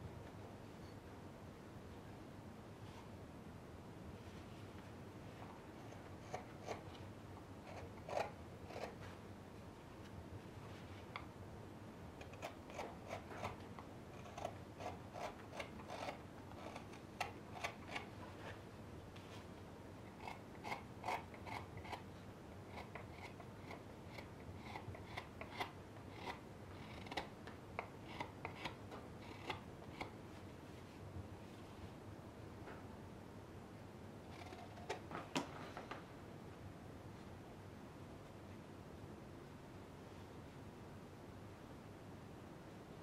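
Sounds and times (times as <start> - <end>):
knife shaving wood: 7.6 - 9.0, 12.2 - 18.5, 20.1 - 22.1, 22.7 - 30.2.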